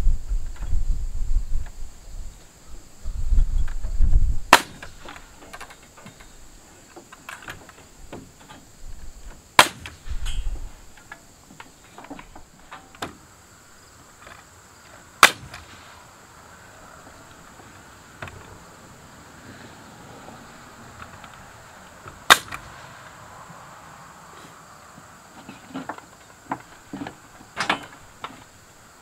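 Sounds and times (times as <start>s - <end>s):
nailer firing sharp shots: 4.5s - 5.0s, 9.6s - 10.0s, 15.2s - 15.8s, 22.3s - 22.7s.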